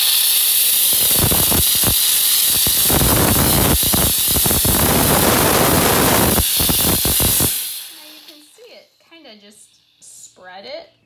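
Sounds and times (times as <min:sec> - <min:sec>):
steam cleaner hissing: 0:00.0 - 0:08.7.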